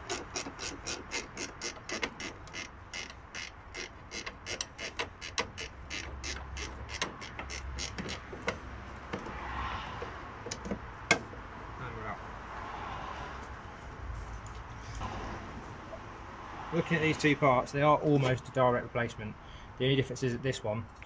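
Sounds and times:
hand ratchet clicking: 0.0s - 9.3s.

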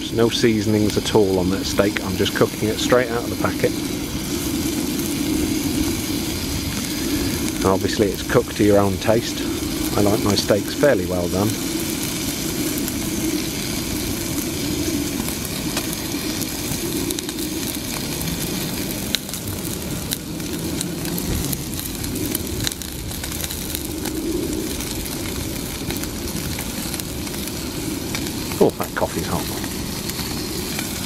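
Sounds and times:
gas stove burner hissing: 0.0s - 31.0s
steak sizzling in a frying pan: 0.0s - 31.0s.

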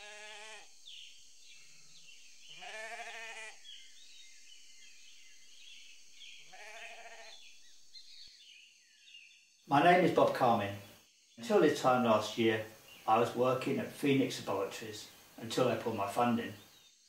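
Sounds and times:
sheep bleating: 0.0s - 0.7s, 2.5s - 3.6s, 6.5s - 7.4s
faint high chirping: 0.0s - 17.0s.

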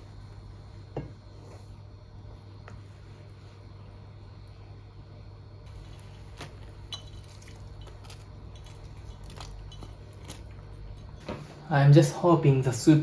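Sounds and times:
steady low hum: 0.0s - 13.0s
light clicks and wet sounds: 5.6s - 11.4s
spoon stirring in a pan: 5.7s - 11.1s.

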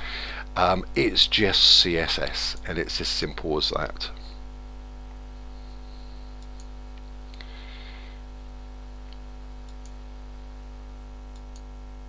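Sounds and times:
low electrical hum: 0.0s - 12.0s
faint computer clicks: 9.0s - 10.0s, 11.3s - 11.8s.

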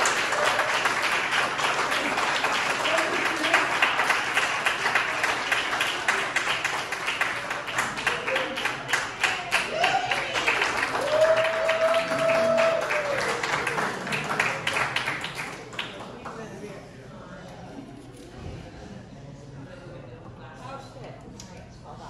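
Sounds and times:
audience applauding and cheering: 0.0s - 16.1s
person holding long cheer: 9.3s - 14.0s.

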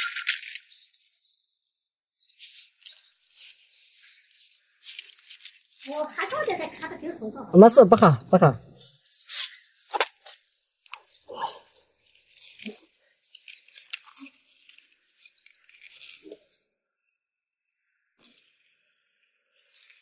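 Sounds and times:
tape crackling and rustling: 2.3s - 6.8s, 12.0s - 17.4s.

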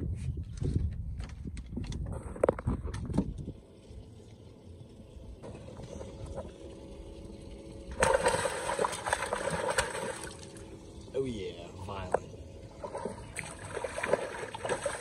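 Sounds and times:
fish splashing in water: 7.9s - 10.8s, 12.7s - 15.0s.

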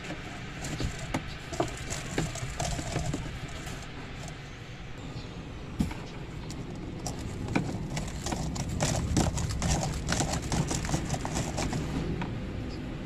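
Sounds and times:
plastic hose clicking and knocking: 0.0s - 4.4s, 6.4s - 12.0s.

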